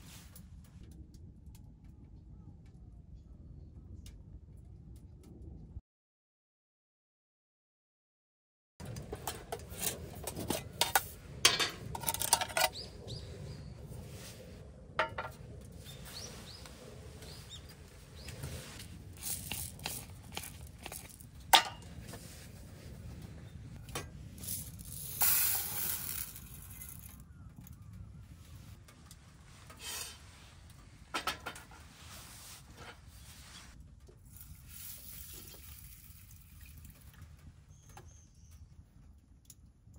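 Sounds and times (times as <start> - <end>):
cookware clinking and knocking: 9.8 - 12.8, 15.0 - 15.4, 21.6 - 21.9.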